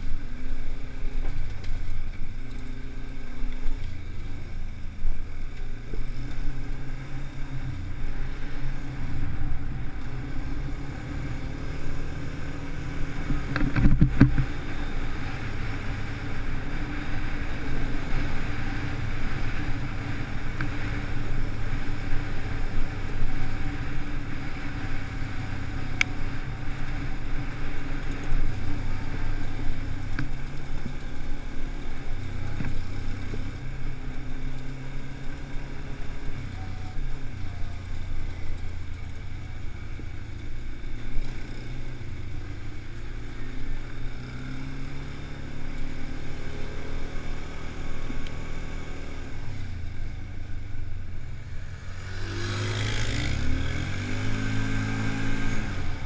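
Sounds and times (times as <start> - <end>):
quad bike engine running: 0.0 - 56.0.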